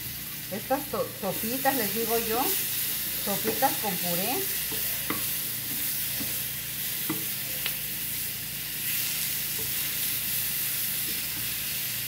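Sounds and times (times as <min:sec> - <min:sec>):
food sizzling in oil: 0:00.0 - 0:12.0
spatula tapping a pan: 0:03.4 - 0:03.9, 0:04.6 - 0:06.4, 0:07.0 - 0:07.8.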